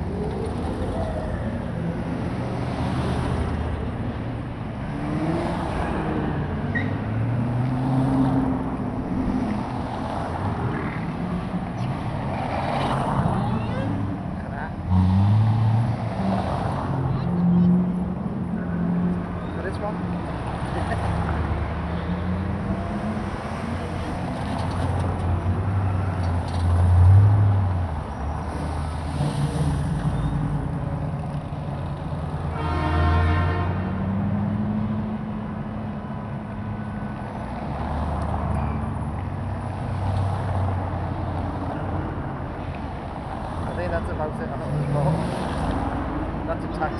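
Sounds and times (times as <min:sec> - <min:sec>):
car engines rumbling past: 0:00.0 - 0:46.9
car horn: 0:32.5 - 0:34.0.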